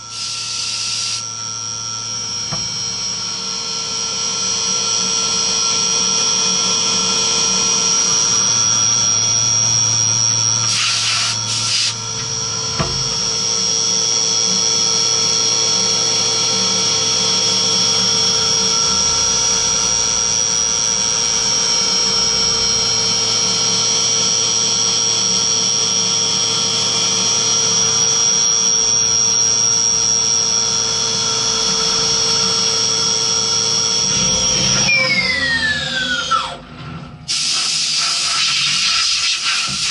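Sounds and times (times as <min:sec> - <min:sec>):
milling machine spindle whine: 0:00.0 - 0:38.9
coolant spray: 0:00.1 - 0:01.2, 0:10.7 - 0:12.0, 0:37.3 - 0:39.9
low machine tones: 0:30.8 - 0:37.2.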